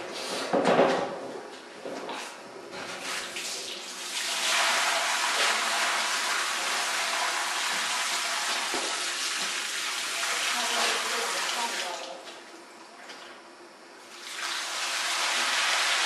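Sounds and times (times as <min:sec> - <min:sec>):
water running and splashing: 0:03.7 - 0:12.4.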